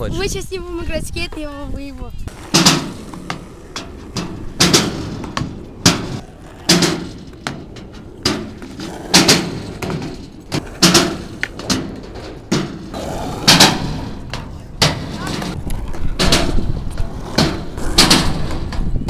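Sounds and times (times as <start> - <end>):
skateboard rolling on asphalt: 1.2 - 19.0
skateboard clacks and knocks: 2.3 - 19.0.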